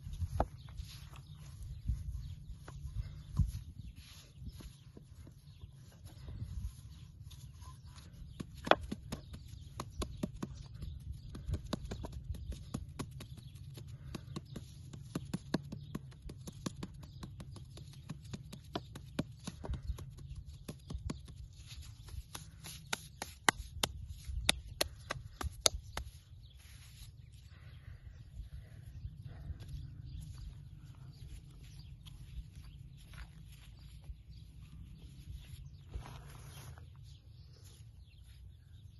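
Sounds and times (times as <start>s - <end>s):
low steady rumble: 26.1s - 38.8s.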